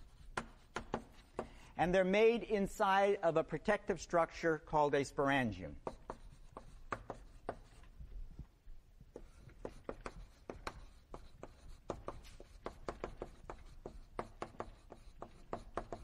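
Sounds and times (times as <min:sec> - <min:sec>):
writing taps and scratches on board: 0:00.0 - 0:01.6, 0:05.8 - 0:07.9, 0:09.1 - 0:16.0.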